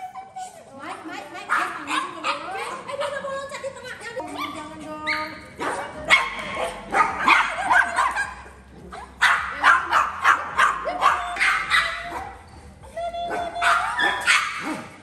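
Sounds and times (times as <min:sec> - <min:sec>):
small dog yapping: 0:13.6 - 0:15.0.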